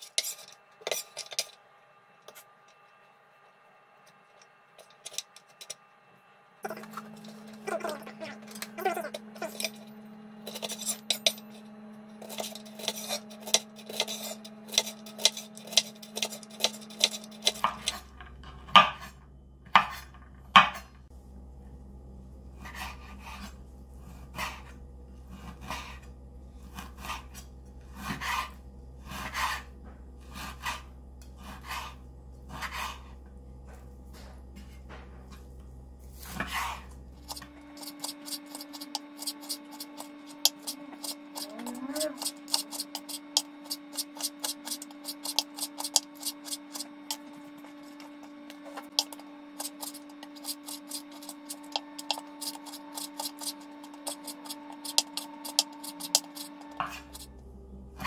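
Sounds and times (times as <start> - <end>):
low hum: 0.3 - 58.0
knife cutting string beans: 12.2 - 18.0, 36.2 - 57.3
knife slicing meat on board: 48.9 - 57.2.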